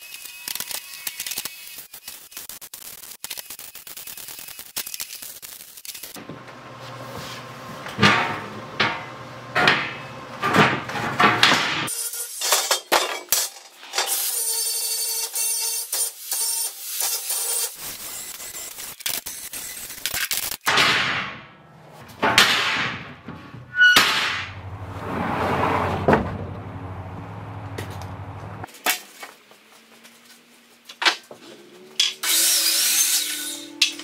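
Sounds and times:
sharp knocks of steel and lumber: 0:07.9 - 0:11.9, 0:20.7 - 0:24.8
angle grinder on steel: 0:32.0 - 0:34.0.

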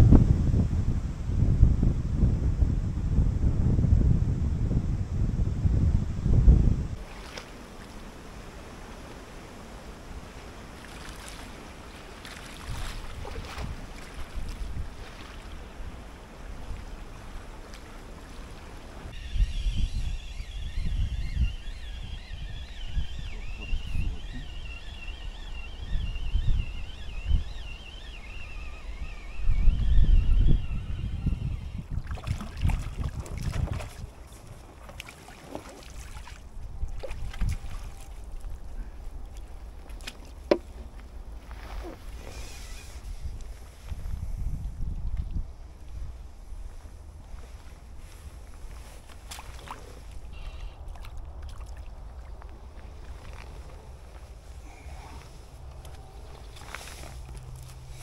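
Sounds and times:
wind gusting on microphone: 0:00.0 - 0:58.0
faint wavering high whistle: 0:19.1 - 0:31.9.

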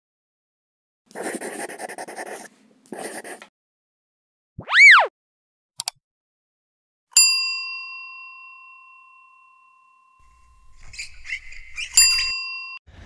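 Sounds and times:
swooping tone: 0:04.6 - 0:05.1.

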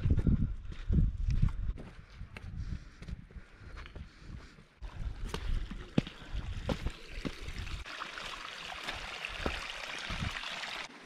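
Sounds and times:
wind rumbling on microphone: 0:00.0 - 0:03.7, 0:09.3 - 0:10.5
mountain stream rushing: 0:07.2 - 0:11.0
footsteps on gravel: 0:08.8 - 0:10.4.

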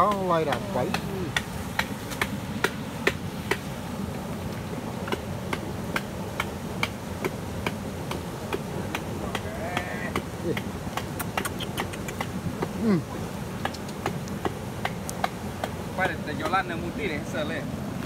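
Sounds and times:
river rapids rushing: 0:00.0 - 0:18.0
sharp regular clicking: 0:10.5 - 0:12.4.

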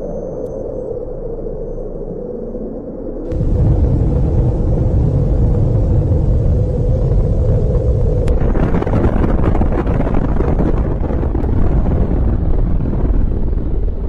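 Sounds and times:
crackling: 0:03.3 - 0:14.0
deep explosion rumble: 0:03.3 - 0:14.0.

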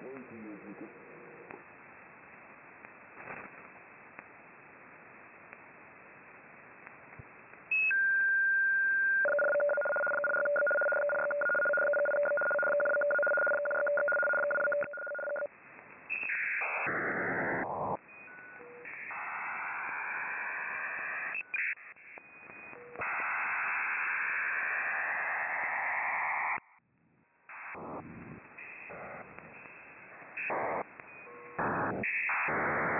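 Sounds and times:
digital data signal noise: 0:09.1 - 0:15.5, 0:28.6 - 0:32.9
steady radio tones: 0:09.3 - 0:15.5, 0:18.9 - 0:26.8, 0:27.5 - 0:32.9.

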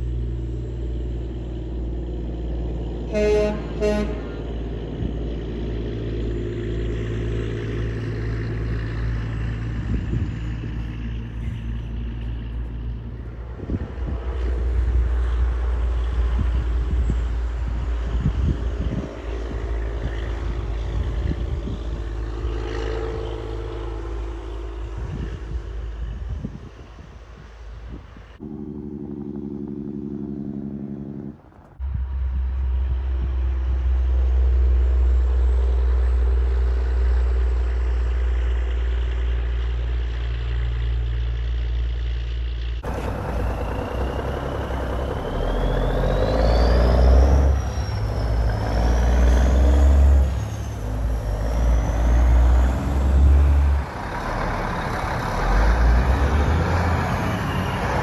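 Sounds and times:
tractor deep exhaust note: 0:00.0 - 0:12.9, 0:28.4 - 0:58.0
diesel trucks running hard: 0:00.0 - 0:58.0.

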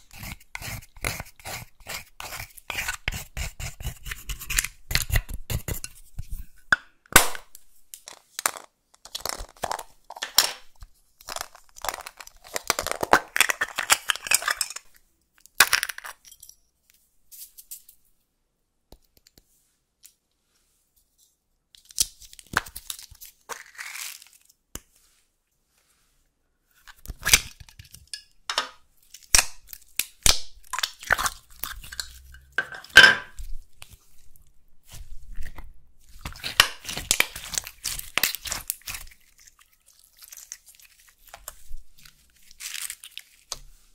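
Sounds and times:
plastic packaging crinkling: 0:11.2 - 0:14.8, 0:36.1 - 0:43.5.

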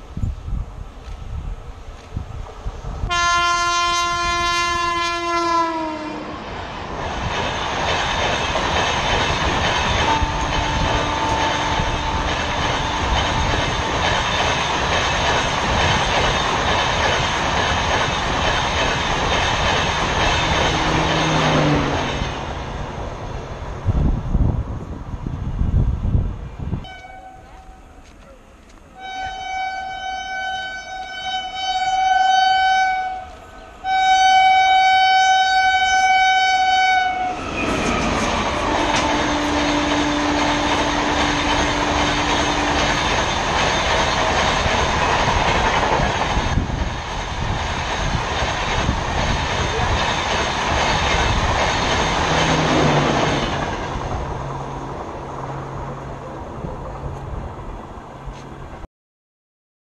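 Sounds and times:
locomotive horn blasts: 0:03.1 - 0:06.3, 0:10.0 - 0:13.2, 0:26.8 - 0:28.0, 0:29.0 - 0:37.4, 0:38.5 - 0:42.9
train wheels clattering on rails: 0:06.8 - 0:23.0, 0:37.4 - 0:54.4.

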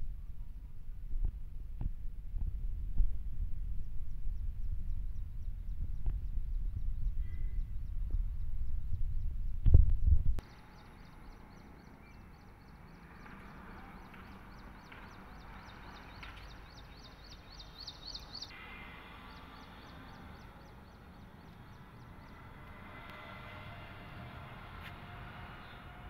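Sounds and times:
faint low rumble: 0:00.0 - 0:10.5.

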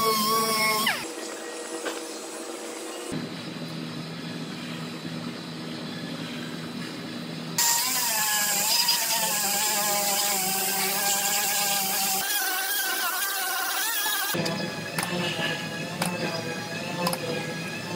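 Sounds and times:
air tool high-speed whine: 0:00.0 - 0:03.2, 0:04.1 - 0:17.9.

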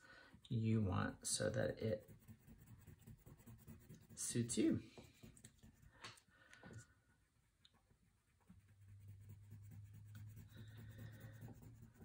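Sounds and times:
crayon rubbing on paper: 0:01.3 - 0:05.9, 0:08.5 - 0:12.0.

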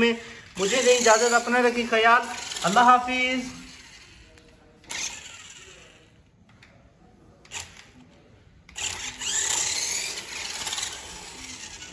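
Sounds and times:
toy car motor whining: 0:00.4 - 0:06.1, 0:07.5 - 0:08.0, 0:08.7 - 0:11.9.

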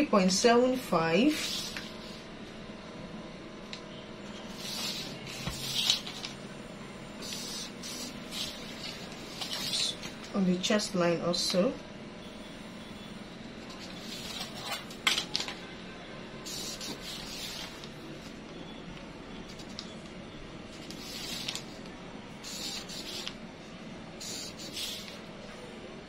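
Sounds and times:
marker pen scratching on paper: 0:01.2 - 0:02.2, 0:04.4 - 0:06.3, 0:07.2 - 0:10.1, 0:13.7 - 0:14.8, 0:16.5 - 0:17.9, 0:20.8 - 0:21.8, 0:22.4 - 0:23.4, 0:24.2 - 0:25.3.

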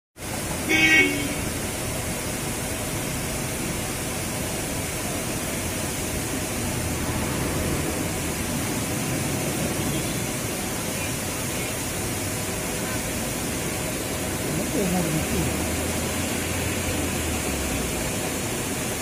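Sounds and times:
waterfall rushing: 0:00.2 - 0:19.0
vehicle horn toot: 0:00.6 - 0:01.5, 0:09.8 - 0:10.2.

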